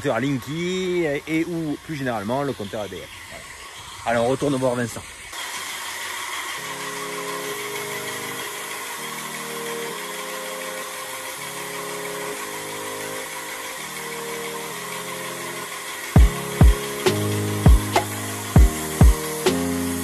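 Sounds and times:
sustained chords: 0:06.6 - 0:20.0.

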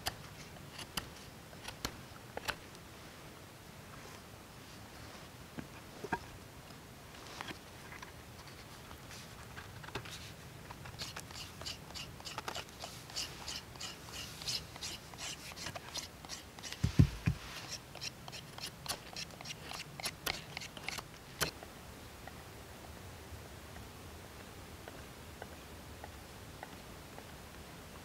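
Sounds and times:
knife scraping wood: 0:10.9 - 0:21.5
dull thump: 0:16.8 - 0:17.4.

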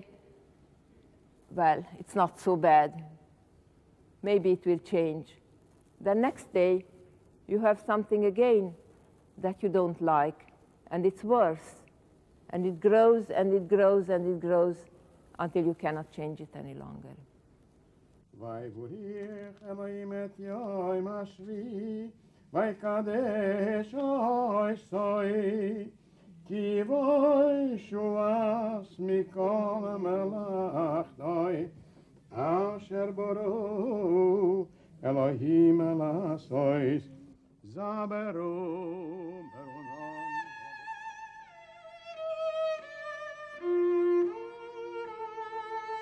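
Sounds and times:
person singing a chant: 0:32.4 - 0:40.5
violin long held notes: 0:39.3 - 0:46.0.

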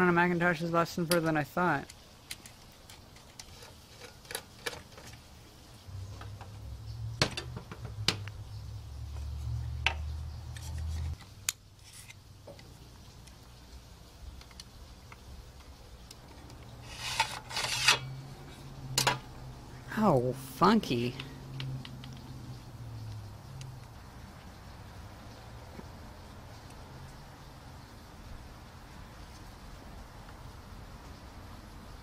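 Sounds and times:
metal parts clicking and scraping: 0:01.9 - 0:05.3, 0:10.5 - 0:12.6, 0:14.4 - 0:18.2.

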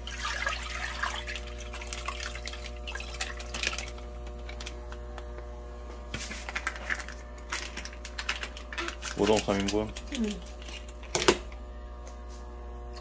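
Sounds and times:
broth pouring and splashing into pot: 0:00.0 - 0:04.6
faint steady hum: 0:00.0 - 0:13.0
plastic bag crinkling: 0:06.4 - 0:11.2.

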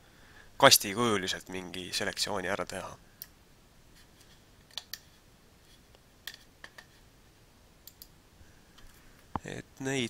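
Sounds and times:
computer mouse clicks: 0:04.7 - 0:05.1, 0:07.8 - 0:08.1.

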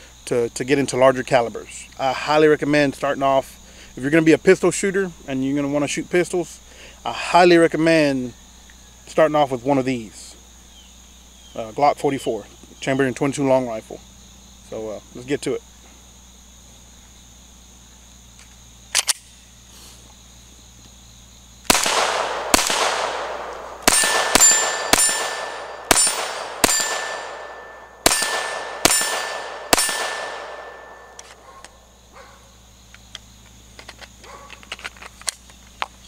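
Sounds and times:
pistol shots: 0:21.7 - 0:31.4
steel target ringing: 0:21.8 - 0:31.2.

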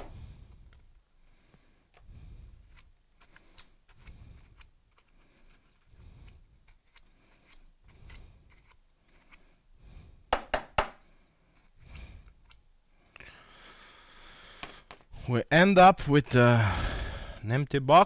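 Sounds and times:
small plastic clicks: 0:02.7 - 0:09.5
sharp knocks: 0:10.3 - 0:11.0.

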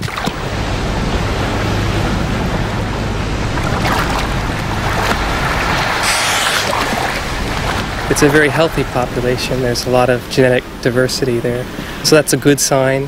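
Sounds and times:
boat motor hum: 0:00.0 - 0:12.1
water rushing and splashing: 0:00.0 - 0:13.0
spray hissing: 0:06.0 - 0:06.8.

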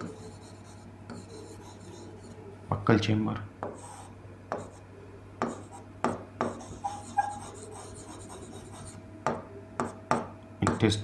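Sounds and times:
marker pen writing on whiteboard: 0:00.0 - 0:02.4, 0:03.6 - 0:04.8, 0:05.4 - 0:09.0, 0:09.8 - 0:10.9
marker squeak: 0:06.5 - 0:09.0.

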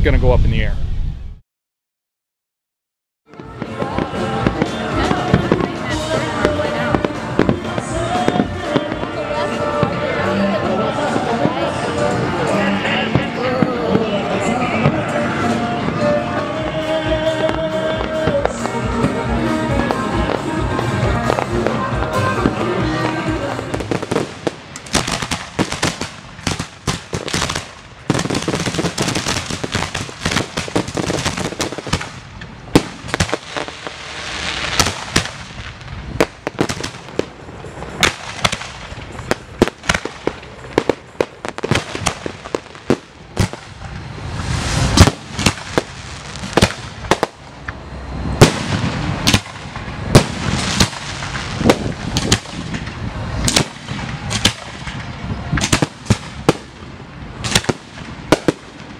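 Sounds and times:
fireworks bangs: 0:03.3 - 0:58.9
fireworks hiss: 0:17.4 - 0:58.9.

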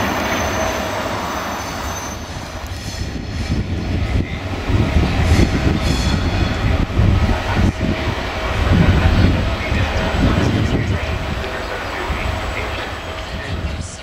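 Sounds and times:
train wheels rumbling: 0:00.0 - 0:14.0
high squealing of wheels: 0:00.1 - 0:03.9, 0:05.3 - 0:06.7.

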